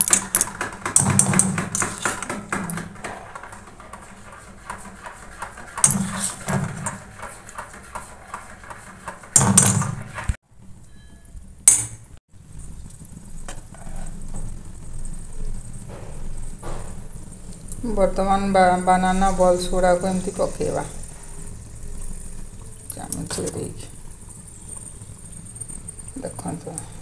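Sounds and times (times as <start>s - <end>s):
whisk beating batter in bowl: 0.0s - 10.4s
oil heating hiss: 12.4s - 27.0s.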